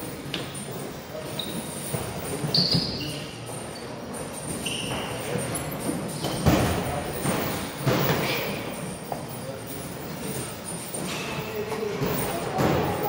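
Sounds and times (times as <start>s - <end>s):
short high squeaks: 1.2s - 6.4s.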